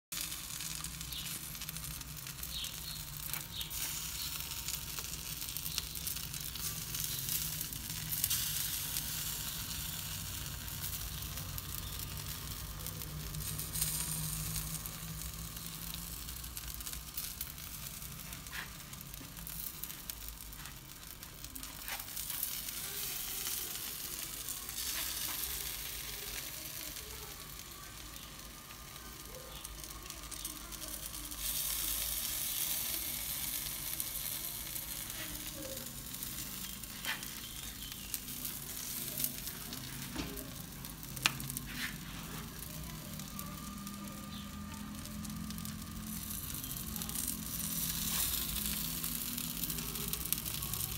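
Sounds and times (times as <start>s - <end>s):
embers crackling: 0.1s - 50.9s
meat sizzling over charcoal: 0.1s - 50.9s.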